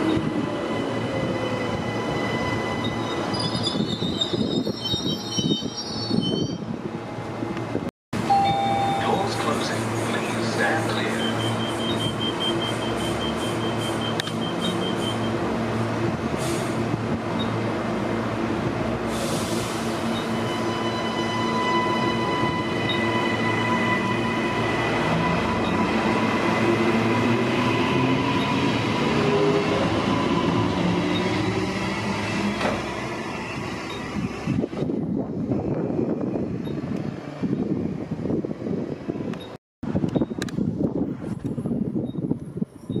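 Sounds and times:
wheels rumbling on rail: 0.0s - 43.0s
high warning tone: 8.2s - 9.4s, 10.9s - 15.4s.

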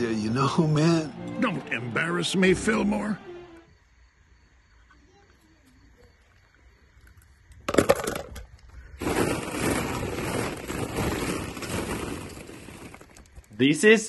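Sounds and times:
plastic balls clattering: 7.6s - 13.5s.

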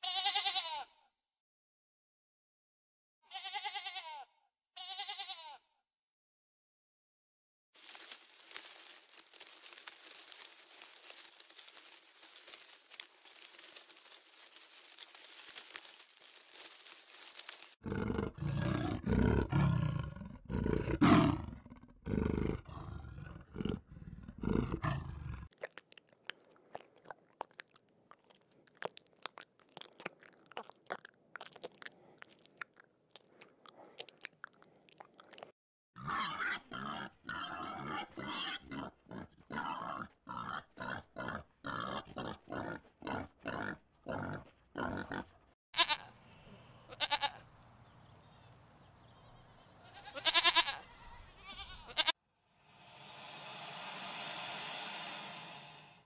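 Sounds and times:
animal tearing and chewing grass: 7.8s - 17.8s, 25.5s - 35.5s.

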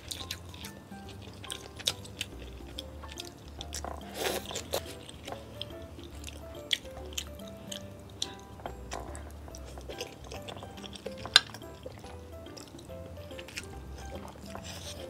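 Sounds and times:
background music with bass line: 0.0s - 15.0s
loud crunchy bite: 0.0s - 15.0s
person chewing: 0.0s - 15.0s.

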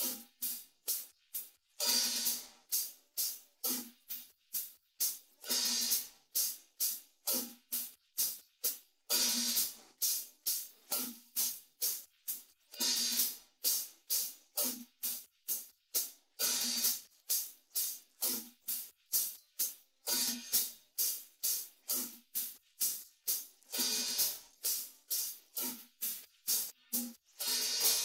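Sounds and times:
short bright cymbal strokes: 1.8s - 3.9s, 9.1s - 28.0s
ringing cymbal wash: 9.1s - 28.0s.

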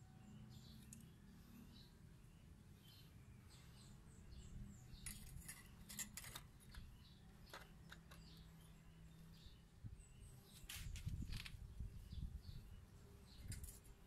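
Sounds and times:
faint bird chirps: 0.0s - 14.0s
light metallic clicks and scrapes: 4.9s - 8.6s, 13.3s - 14.0s.

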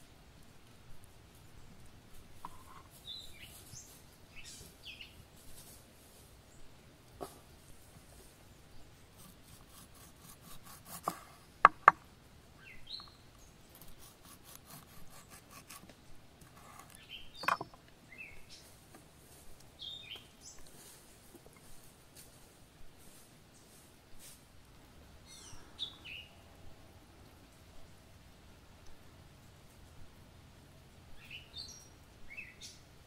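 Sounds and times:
knife slicing tomato: 9.2s - 11.4s, 13.8s - 17.6s
bird chirps: 12.6s - 13.9s, 25.3s - 26.4s, 31.2s - 32.8s.

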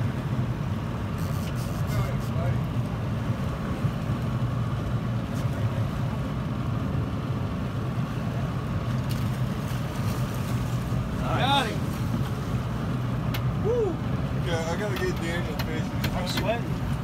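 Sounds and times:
wind: 0.0s - 17.0s
boat motor humming: 6.1s - 17.0s.

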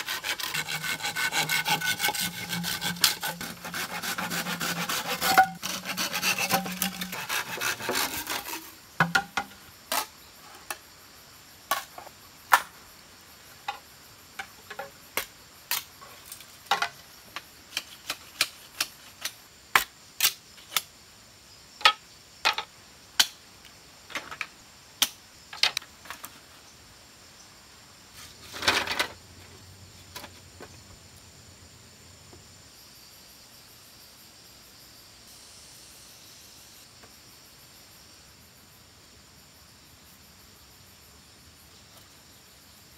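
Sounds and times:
hand saw rasping through bamboo: 0.0s - 9.2s
scraping: 0.0s - 10.1s
insects chirring: 0.0s - 42.9s
wooden knocks and clacks: 5.1s - 5.7s, 9.0s - 9.6s.

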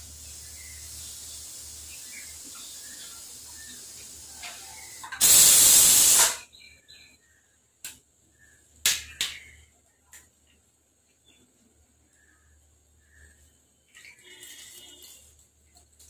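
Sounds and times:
pressure cooker steam hiss: 0.0s - 6.6s.

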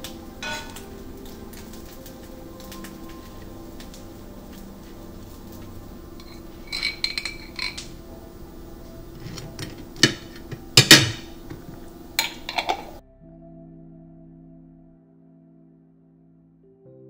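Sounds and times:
soft sustained music tones: 0.0s - 17.0s
cutlery clinking on a plate: 6.2s - 7.9s, 12.2s - 13.0s.

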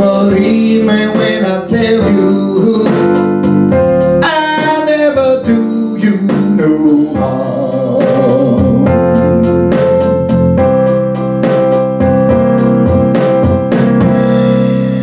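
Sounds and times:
man singing: 0.0s - 3.4s, 4.2s - 10.0s
keyboards and drum backing track: 0.0s - 15.0s.

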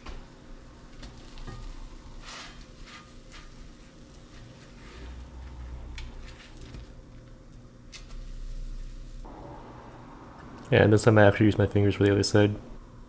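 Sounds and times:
waffles frying in butter: 0.6s - 5.2s, 6.0s - 9.3s
spatula scraping a skillet: 1.1s - 6.8s.

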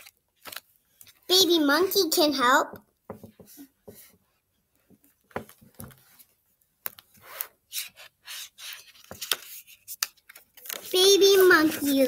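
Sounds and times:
book pages turning: 0.0s - 1.3s, 5.2s - 12.0s.

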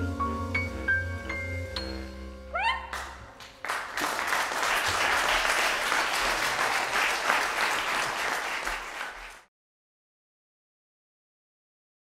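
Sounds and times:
audience applauding: 2.9s - 9.5s.

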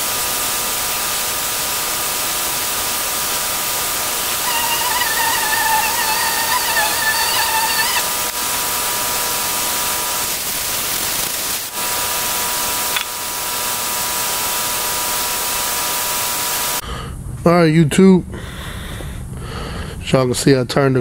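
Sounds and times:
loud hiss: 0.0s - 16.8s
wavering whistle-like tone: 4.3s - 8.3s.

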